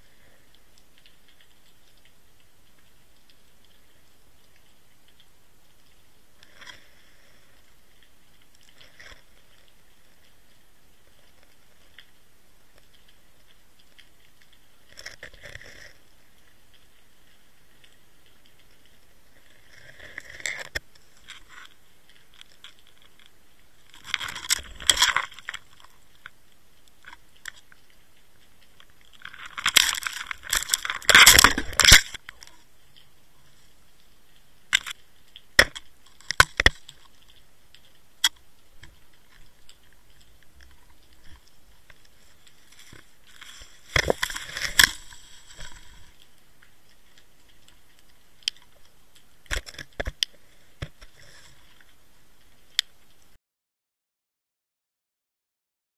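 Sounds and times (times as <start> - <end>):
camera scraping on gravel: 42.7 - 46.2.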